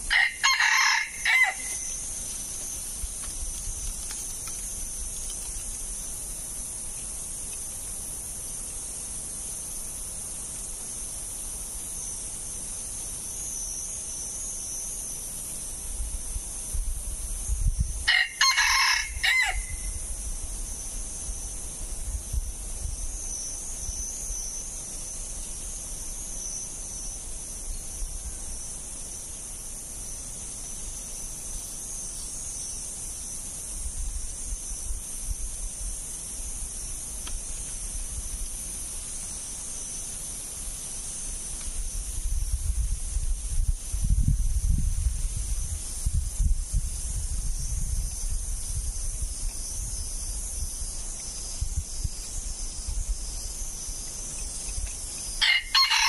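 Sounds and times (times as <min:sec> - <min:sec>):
steady high hiss: 0:00.0 - 0:56.0
rooster crowing: 0:00.1 - 0:01.9, 0:18.0 - 0:20.0, 0:55.4 - 0:56.0.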